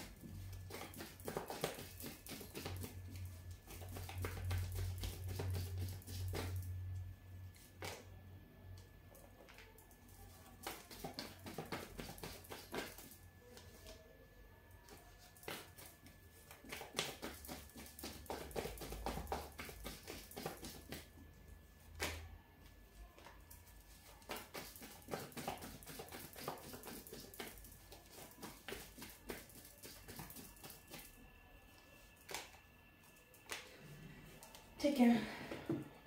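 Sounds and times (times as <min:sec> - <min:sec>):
cards being shuffled: 0:00.1 - 0:06.6.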